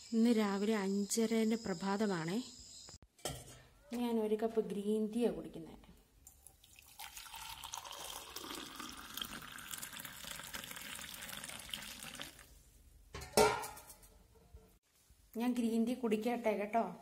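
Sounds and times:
water pouring into a mug: 0:06.4 - 0:12.5.

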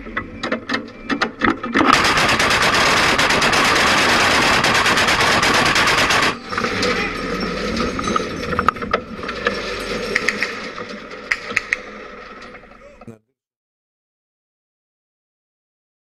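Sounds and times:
autocannon firing rapid burst: 0:01.9 - 0:06.5
ragged clatter with clicks: 0:07.6 - 0:12.6.

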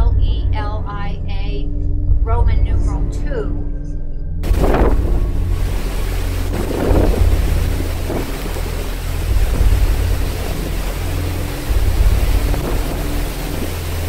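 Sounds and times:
rough sea rushing: 0:04.4 - 0:14.0
wind rumbling on microphone: 0:04.4 - 0:14.0.

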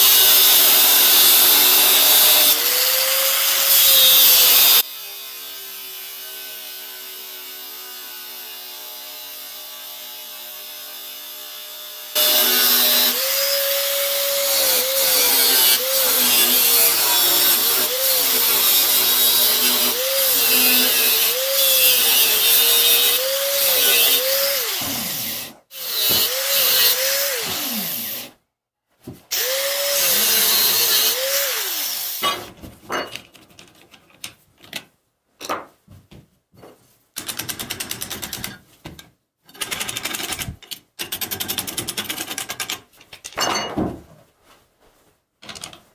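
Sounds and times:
angle grinder cutting steel: 0:00.0 - 0:28.3, 0:29.3 - 0:32.4.

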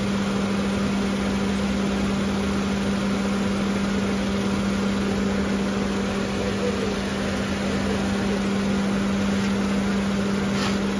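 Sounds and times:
car engine idling: 0:03.2 - 0:10.5.

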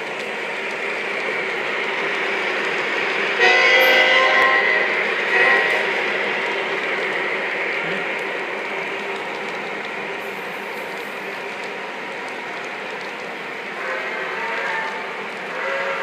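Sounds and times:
model train rumble and clatter: 0:00.0 - 0:16.0
train horn chord: 0:03.4 - 0:05.8.

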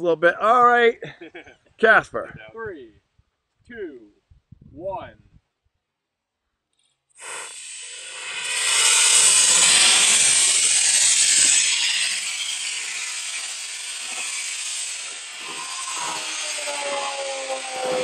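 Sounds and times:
rocket motor rushing hiss: 0:07.2 - 0:18.0.

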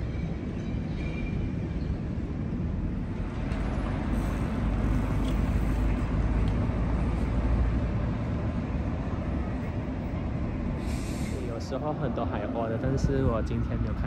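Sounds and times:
wind buffeting microphone: 0:12.1 - 0:14.0.

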